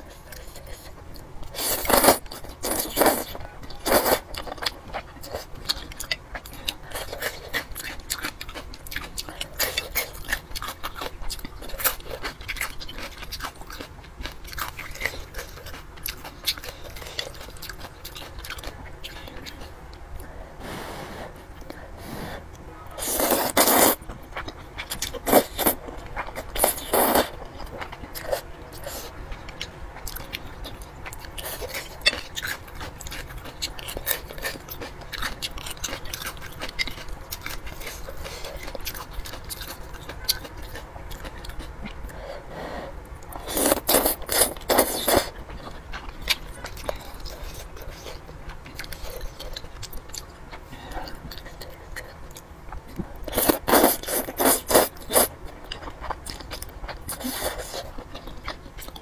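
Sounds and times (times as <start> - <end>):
wet chewing and smacking: 0.1 - 20.3, 23.3 - 42.2, 43.0 - 59.0
person slurping noodles: 23.0 - 24.0.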